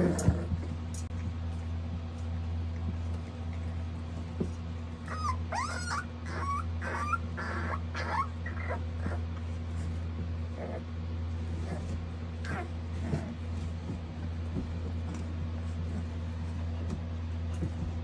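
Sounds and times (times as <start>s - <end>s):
puppies yipping and squealing: 5.0s - 9.3s.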